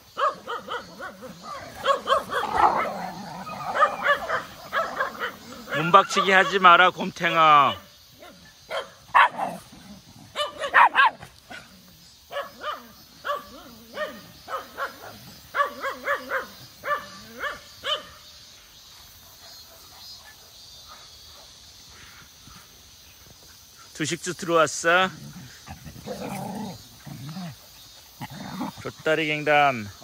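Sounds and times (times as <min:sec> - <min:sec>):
dogs barking: 0:00.0 - 0:06.8, 0:07.6 - 0:18.2
cicadas droning: 0:00.0 - 0:30.0.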